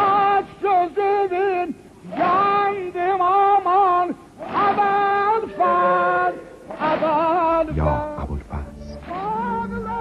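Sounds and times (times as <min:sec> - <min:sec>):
person singing a devotional chant: 0:00.0 - 0:10.0.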